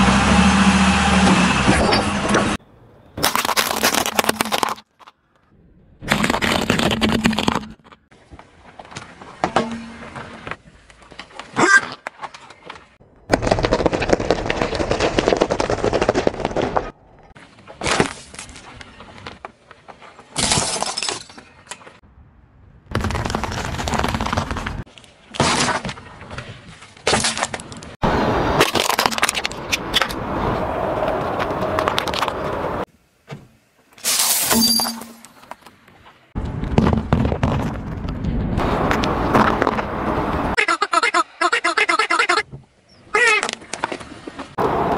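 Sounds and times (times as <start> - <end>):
tyre crushing objects: 3.2 - 5.1
hard sweets cracking: 3.2 - 5.2, 13.0 - 16.9.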